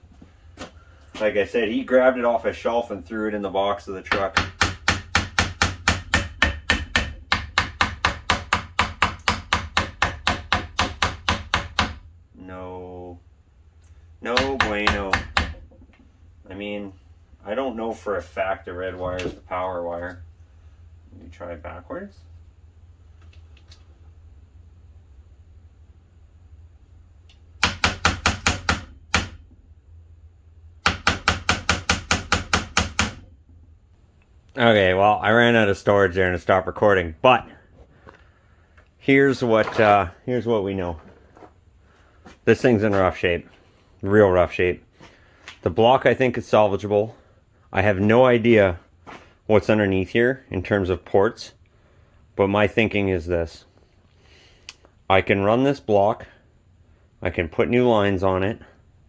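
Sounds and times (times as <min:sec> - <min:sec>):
low hum: 0:11.8 - 0:27.8, 0:28.6 - 0:30.9, 0:32.6 - 0:54.2.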